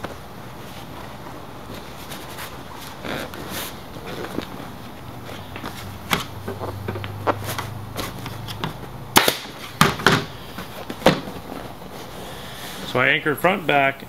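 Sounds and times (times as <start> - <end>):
air stapler firing: 9.2 - 10.4.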